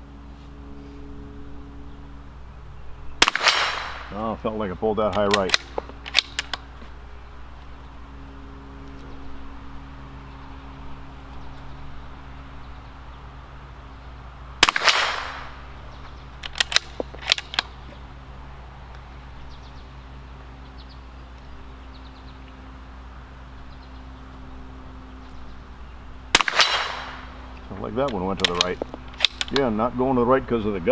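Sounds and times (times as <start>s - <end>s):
rifle shot with echo: 3.2s - 4.2s, 14.6s - 15.7s, 26.3s - 27.4s
rifle bolt clicking: 5.1s - 6.6s, 16.4s - 17.7s, 28.0s - 29.7s.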